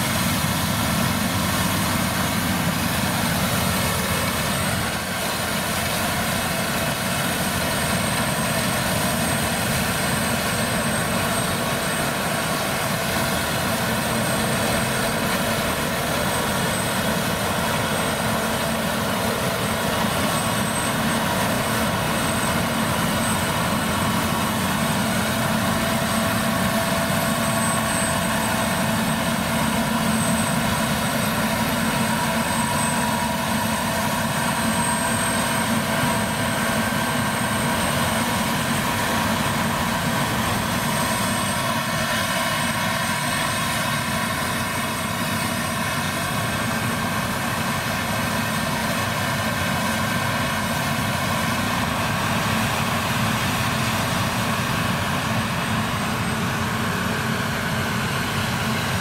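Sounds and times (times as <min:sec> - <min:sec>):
combine harvester drone: 0:00.0 - 0:59.0
thin high whine: 0:00.0 - 0:59.0.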